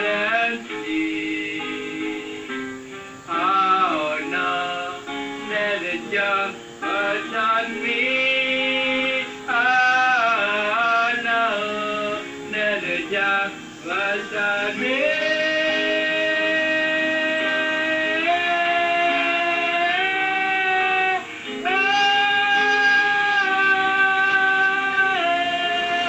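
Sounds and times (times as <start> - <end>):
acoustic guitar: 0.0 - 26.0
man singing: 0.0 - 26.0.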